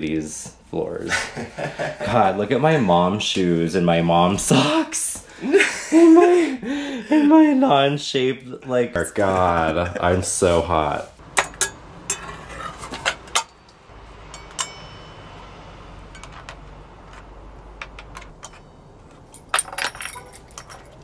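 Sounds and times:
metal parts clinking: 16.1s - 21.0s.

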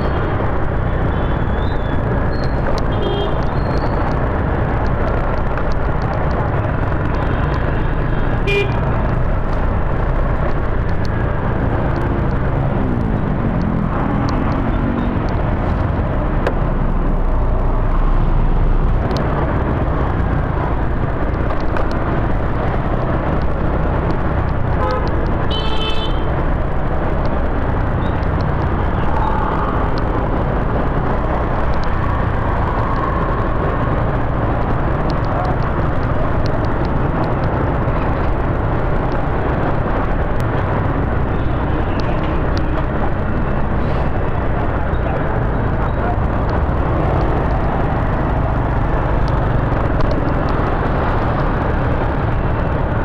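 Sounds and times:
engines and road noise rumbling: 0.0s - 53.0s.

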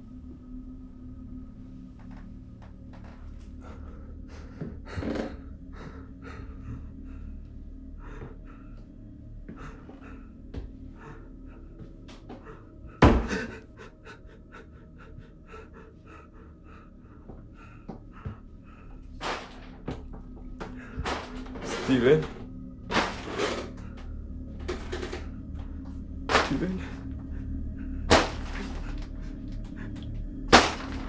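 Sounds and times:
man panting heavily: 5.6s - 21.6s.

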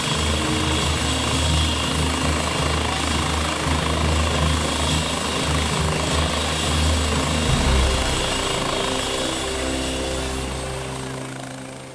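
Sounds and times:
helicopter taking off: 0.0s - 11.9s.

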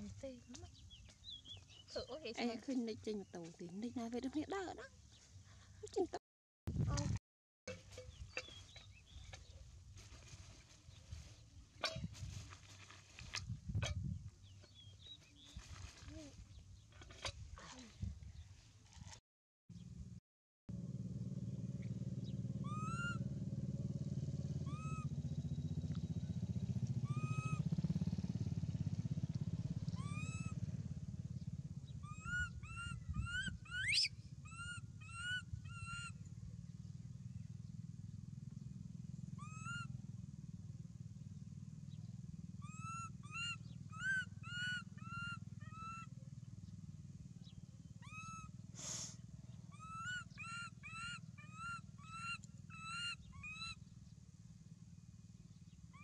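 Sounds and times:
low motor drone: 19.8s - 33.1s
short arched high calls: 32.1s - 36.2s.

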